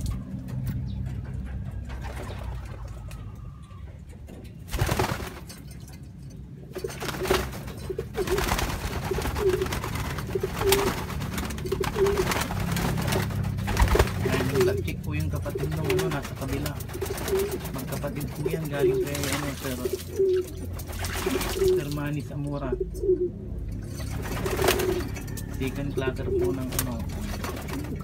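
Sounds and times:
wings flapping: 4.6s - 5.8s, 6.7s - 22.2s, 23.9s - 28.0s
pigeons cooing: 6.7s - 28.0s
water splashing: 16.8s - 22.2s.

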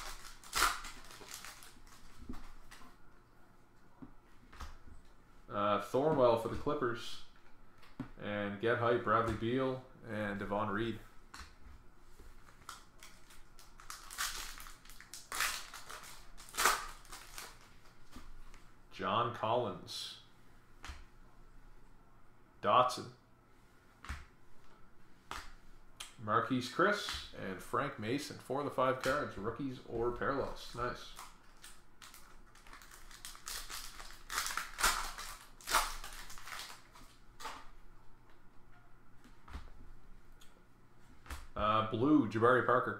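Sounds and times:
foil wrapper crinkling and tearing: 0.0s - 2.7s, 12.6s - 18.0s, 31.0s - 37.2s.

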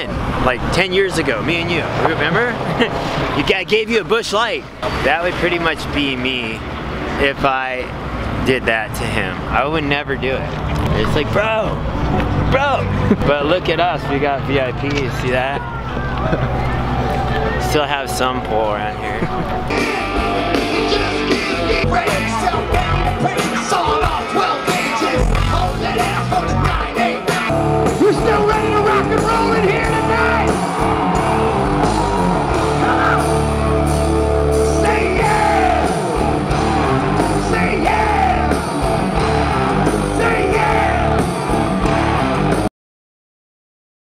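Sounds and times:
rock band playing: 19.2s - 42.7s
man singing and shouting: 19.7s - 30.6s, 34.6s - 36.2s, 37.1s - 38.8s, 39.9s - 41.3s.

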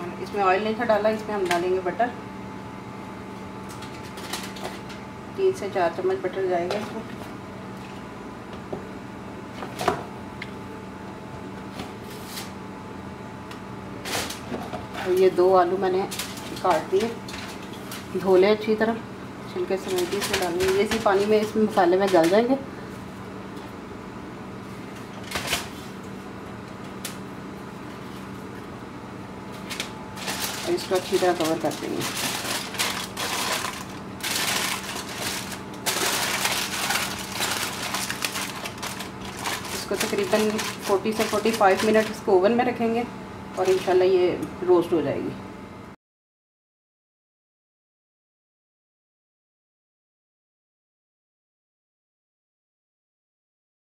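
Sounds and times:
steady low hum: 0.0s - 46.0s
aluminium foil crinkling: 3.7s - 5.0s, 16.0s - 18.2s, 19.7s - 22.6s, 29.5s - 42.3s, 43.5s - 44.0s.

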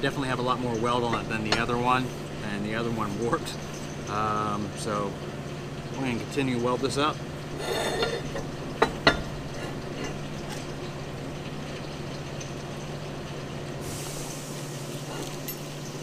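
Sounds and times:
steel tube clanking on metal table: 7.6s - 10.7s
faint hiss: 13.8s - 16.0s.

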